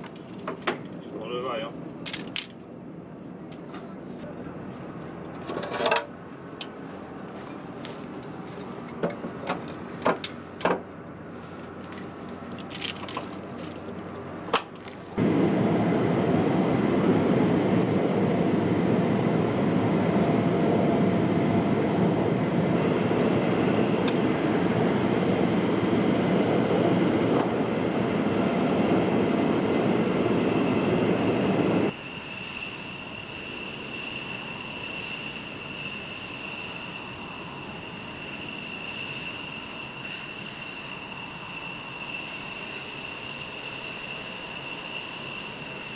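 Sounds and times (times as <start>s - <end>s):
deep rushing jet noise: 14.2s - 45.9s
high-pitched turbine whine: 15.2s - 45.9s.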